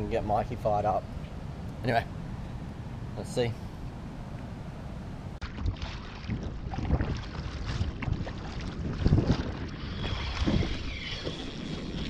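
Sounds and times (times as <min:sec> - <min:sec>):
wind rumbling on microphone: 0:00.0 - 0:12.0
paddle splashing in water: 0:05.4 - 0:12.0.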